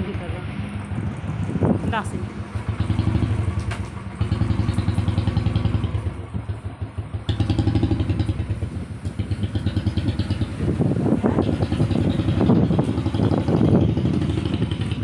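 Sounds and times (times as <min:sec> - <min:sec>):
motorcycle engine idling: 0:02.2 - 0:15.0.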